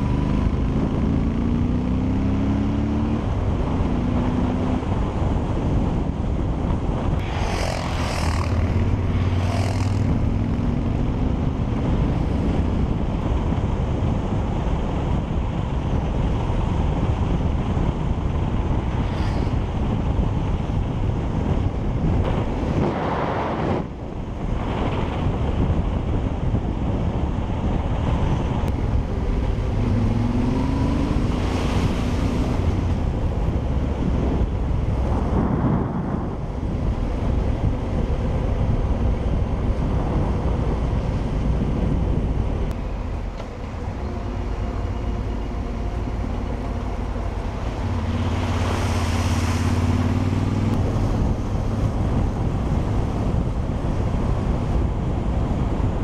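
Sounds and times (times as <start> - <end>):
vehicle engine running: 0.0 - 22.7, 26.8 - 56.0
wind buffeting microphone: 0.0 - 56.0.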